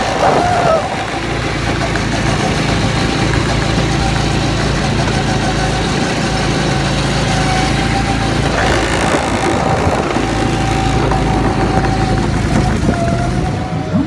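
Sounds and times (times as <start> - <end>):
go-kart engine running: 0.0 - 14.0.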